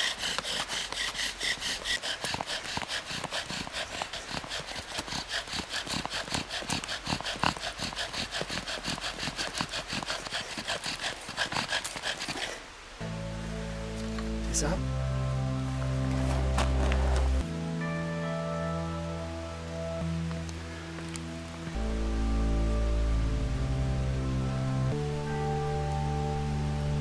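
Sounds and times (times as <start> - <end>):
bow drill spindle grinding wood: 0.0 - 12.6.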